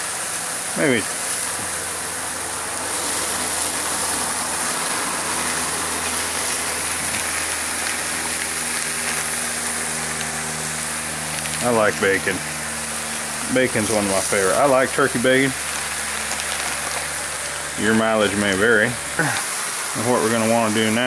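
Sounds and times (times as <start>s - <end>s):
bacon sizzling on a griddle: 0.0s - 21.0s.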